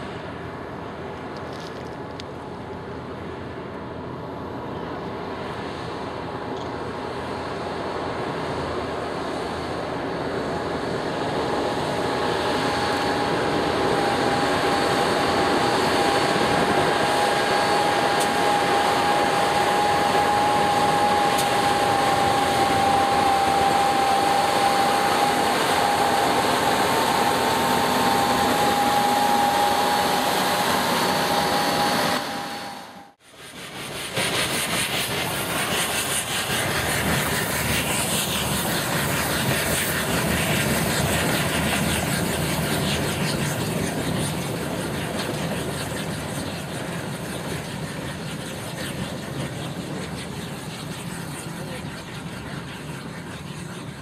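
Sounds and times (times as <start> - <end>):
diesel locomotive engine drone: 0.0 - 54.0
held whine: 0.0 - 54.0.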